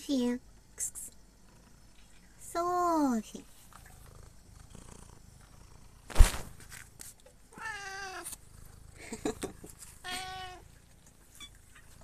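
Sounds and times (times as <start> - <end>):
cat meowing: 7.6 - 8.3, 10.0 - 10.6.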